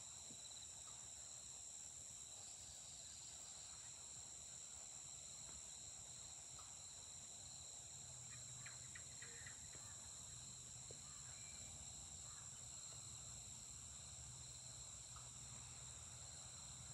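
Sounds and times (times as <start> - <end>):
insects chirring: 5.8 - 16.9.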